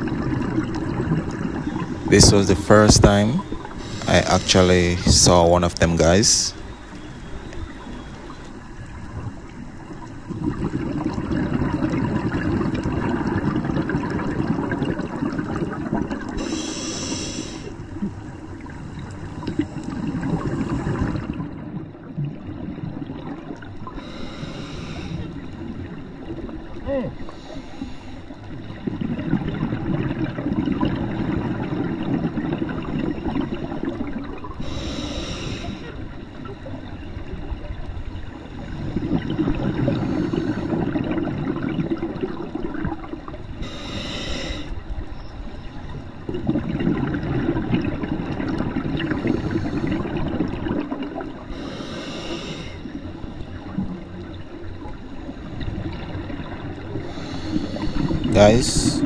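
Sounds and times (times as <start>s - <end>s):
exhaust bubbles underwater: 0.0s - 24.2s, 25.0s - 44.2s, 44.8s - 52.1s, 52.8s - 59.0s
regulator inhale hiss: 3.1s - 5.5s, 6.1s - 8.5s, 16.4s - 17.8s, 24.0s - 25.4s, 27.2s - 28.4s, 34.6s - 36.0s, 43.6s - 44.8s, 51.5s - 53.2s, 57.0s - 58.3s.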